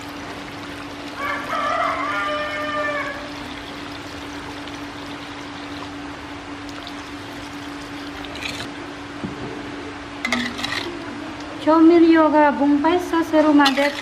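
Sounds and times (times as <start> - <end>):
liquid pouring into a wok: 0.0 - 8.8, 13.7 - 14.0
metal spatula scraping a wok: 10.3 - 11.0.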